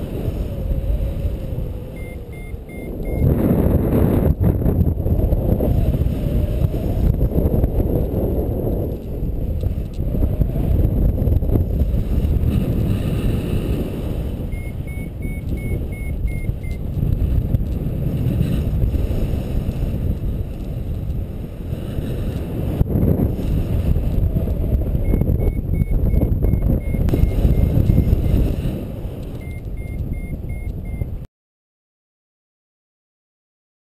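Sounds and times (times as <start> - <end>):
wind rushing over microphone: 0.0 - 31.3
variometer short beeps: 1.9 - 3.3, 14.5 - 16.8, 25.0 - 28.4, 29.4 - 31.2.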